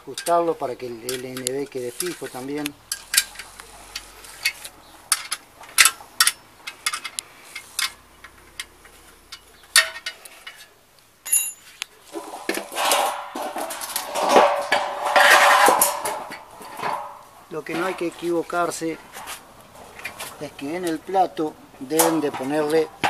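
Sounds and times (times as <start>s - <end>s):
metal parts scraping: 0.0s - 20.5s
wrench clicking on metal bolts: 0.1s - 11.6s.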